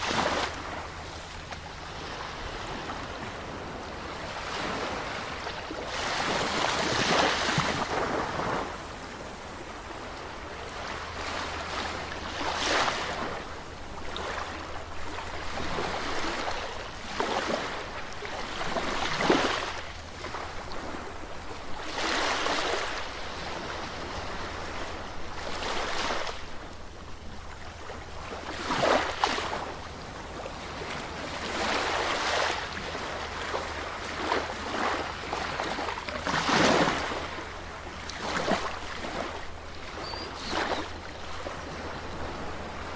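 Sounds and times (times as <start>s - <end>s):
waves breaking on a beach: 0.0s - 42.9s.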